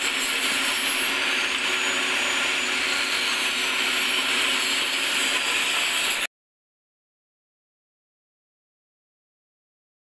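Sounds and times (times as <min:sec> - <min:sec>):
angle grinder on steel: 0:00.0 - 0:06.3.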